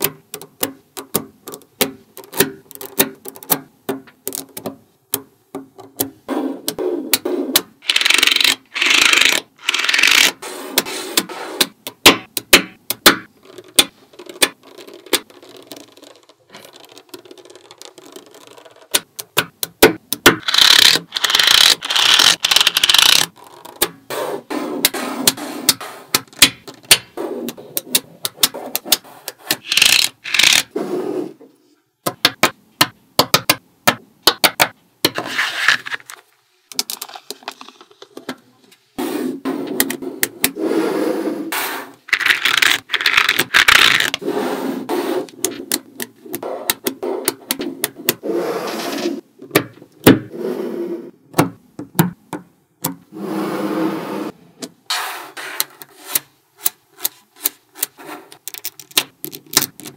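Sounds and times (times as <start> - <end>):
magnetic balls clicking together: 0.0 - 10.4, 11.6 - 24.0, 25.7 - 30.7, 56.6 - 59.9
balls rolling on a tabletop: 13.4 - 19.1.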